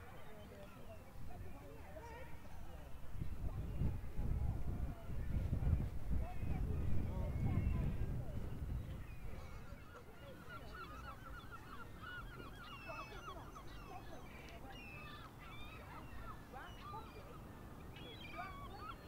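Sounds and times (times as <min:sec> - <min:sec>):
birds honking: 0:09.1 - 0:19.0.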